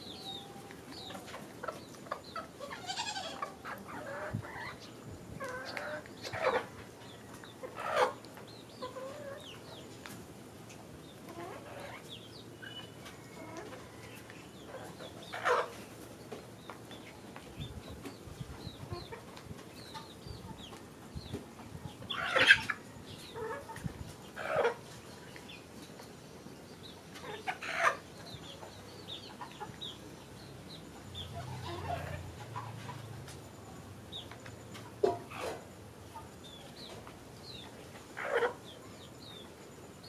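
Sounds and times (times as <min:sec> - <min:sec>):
hens clucking: 0:00.0 - 0:26.1, 0:26.8 - 0:30.2, 0:31.2 - 0:33.4, 0:34.2 - 0:39.5
loud hen calls: 0:02.4 - 0:04.8, 0:22.1 - 0:22.8.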